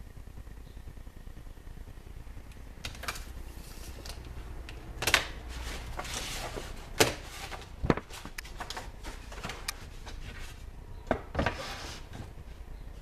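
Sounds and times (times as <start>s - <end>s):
paper rustling: 5.2s - 10.7s.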